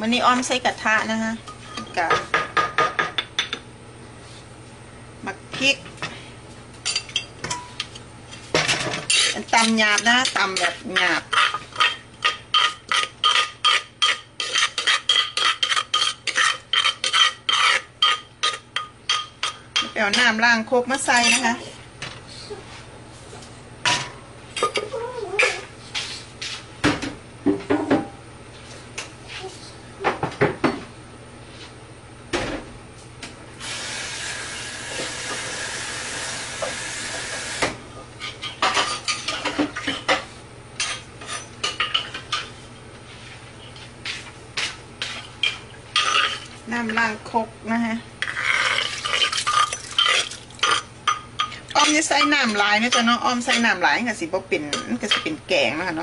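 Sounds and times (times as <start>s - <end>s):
wooden pestle scraping mortar: 9.1s - 18.6s, 48.2s - 50.8s.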